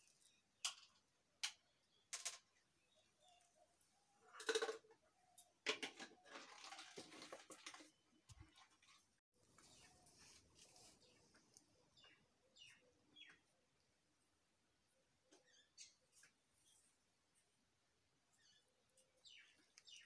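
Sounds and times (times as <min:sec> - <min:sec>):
clicks and knocks of objects: 0:00.6 - 0:02.6, 0:04.4 - 0:07.9.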